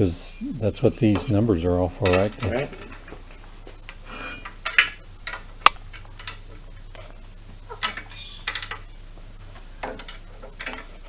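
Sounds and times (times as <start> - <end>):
steady low hum: 0.0 - 11.0
light metal clicks and knocks: 2.0 - 3.4.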